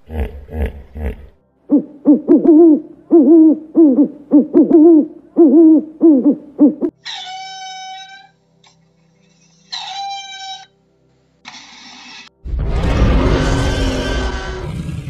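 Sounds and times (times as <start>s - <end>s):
low grunting: 0.0s - 1.4s
owl hooting: 1.7s - 8.3s, 9.6s - 10.7s.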